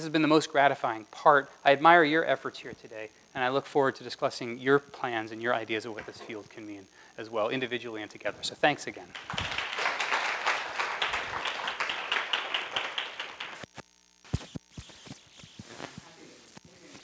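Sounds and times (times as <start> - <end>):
audience applauding: 9.2 - 13.7.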